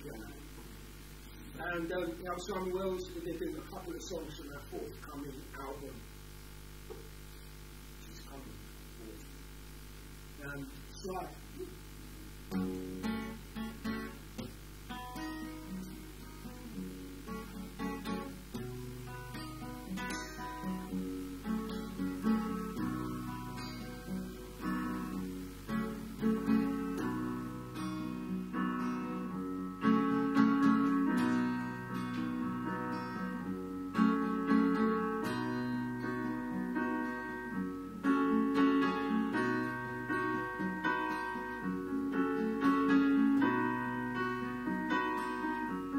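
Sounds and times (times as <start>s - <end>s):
acoustic guitar: 0.0s - 45.9s
digital piano: 10.9s - 45.9s.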